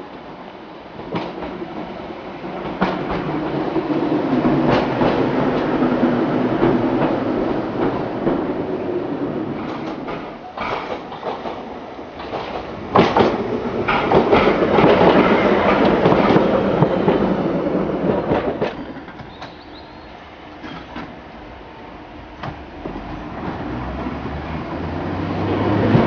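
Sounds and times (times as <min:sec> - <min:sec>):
electric train passing: 0:00.0 - 0:10.4, 0:11.1 - 0:26.0
wheels clicking over rail joints: 0:09.6 - 0:17.3.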